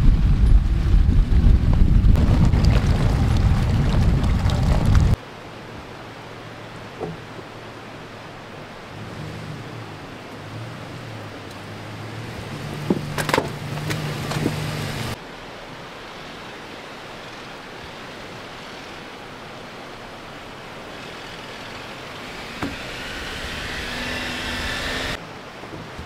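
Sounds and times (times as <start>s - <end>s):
vehicle engine hum: 0.0s - 15.3s, 16.1s - 25.3s
road noise: 0.0s - 26.0s.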